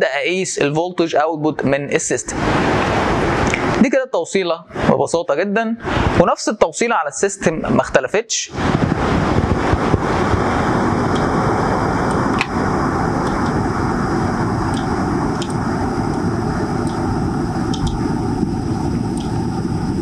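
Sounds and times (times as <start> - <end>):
loud rushing noise: 2.3 - 3.8, 5.8 - 6.2, 8.5 - 20.0
low rumble: 8.5 - 20.0
computer mouse clicks: 14.7 - 15.6, 17.7 - 18.0.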